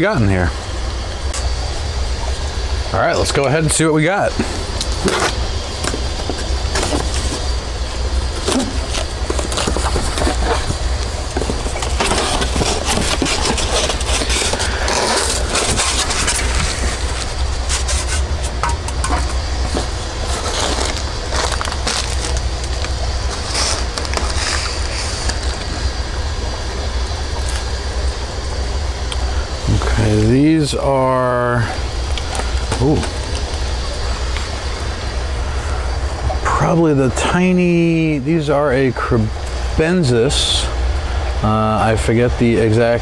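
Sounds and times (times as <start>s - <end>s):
steady low hum: 0.0s - 43.0s
packaging rustling and crinkling: 4.8s - 26.0s.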